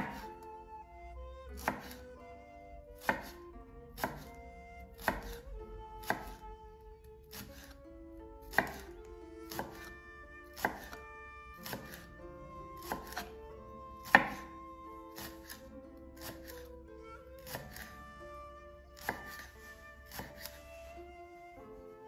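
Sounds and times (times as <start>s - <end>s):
knife slicing onto cutting board: 0.0s - 0.4s, 1.6s - 2.0s, 3.0s - 3.4s, 5.0s - 5.4s, 8.5s - 8.9s, 9.5s - 9.9s, 10.6s - 11.0s, 11.6s - 12.1s, 12.8s - 13.3s, 14.0s - 14.5s, 15.1s - 15.6s, 16.2s - 16.7s, 17.4s - 17.9s, 19.0s - 19.5s, 20.1s - 20.6s.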